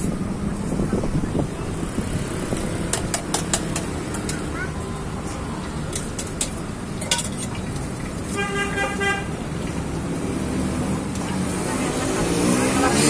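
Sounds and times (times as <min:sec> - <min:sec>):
street traffic noise: 0:00.0 - 0:13.0
vehicle horn toot: 0:08.3 - 0:09.3.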